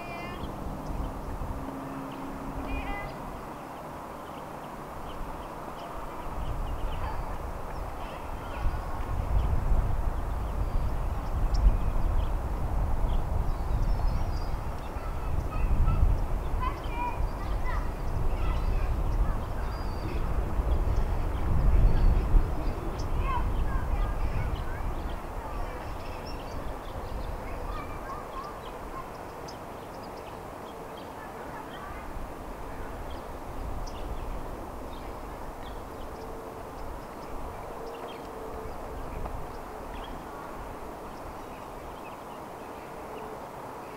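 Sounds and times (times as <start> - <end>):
wind buffeting microphone: 0.0 - 43.8
bird calls: 13.0 - 43.9.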